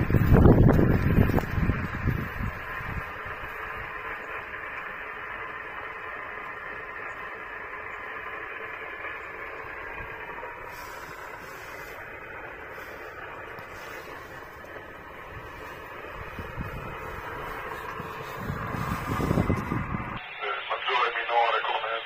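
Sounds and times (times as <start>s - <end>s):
radio static hiss: 9.4s - 19.3s, 19.9s - 22.0s.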